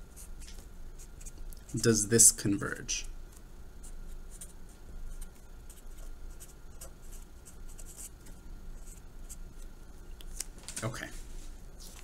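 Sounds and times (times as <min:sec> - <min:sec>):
marker pen scratching on paper: 0:00.1 - 0:01.9, 0:03.8 - 0:09.7.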